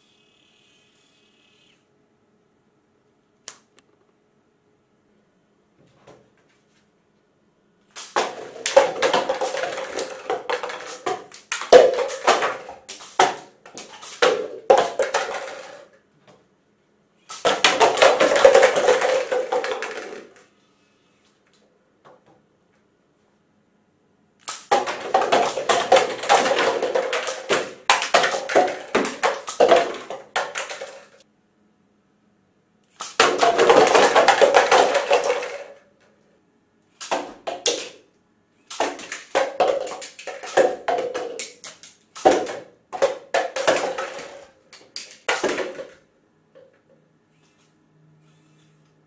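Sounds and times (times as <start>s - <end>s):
plastic cups clattering on wood: 8.0s - 15.9s, 17.3s - 20.4s, 24.5s - 31.2s, 33.1s - 35.8s, 38.7s - 46.0s.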